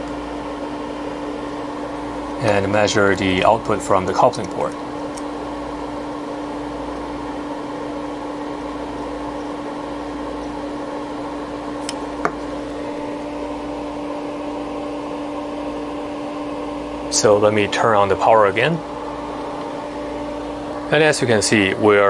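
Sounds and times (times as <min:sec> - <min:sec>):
equipment hum and fan whir: 0:00.0 - 0:22.0.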